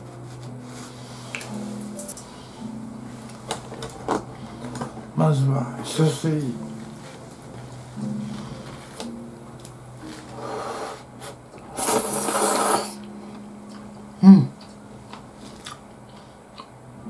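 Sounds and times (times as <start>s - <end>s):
noodles being slurped: 11.8s - 13.0s.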